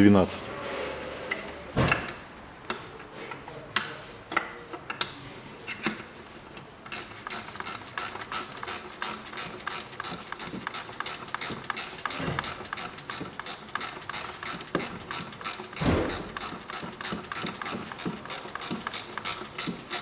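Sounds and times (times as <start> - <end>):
metal clicks and knocks: 3.8 - 7.7
ratchet wrench clicking: 6.9 - 20.0.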